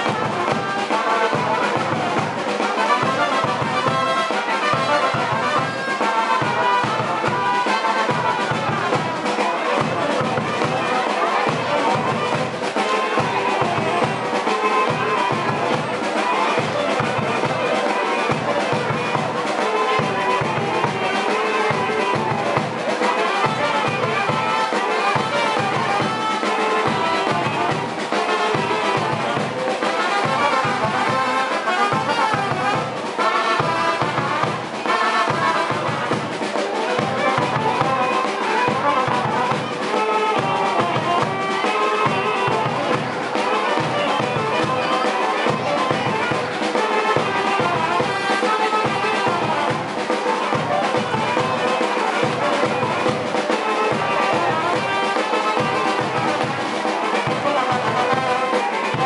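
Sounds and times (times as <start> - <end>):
brass band music: 0.0 - 59.0
steady beat: 0.0 - 59.0.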